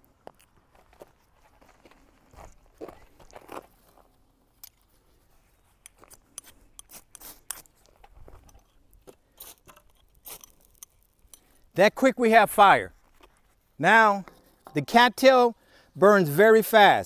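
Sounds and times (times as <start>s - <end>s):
footsteps on gravel: 0.0s - 4.4s
ferro rod scraped with striker: 5.6s - 7.9s, 8.5s - 11.5s.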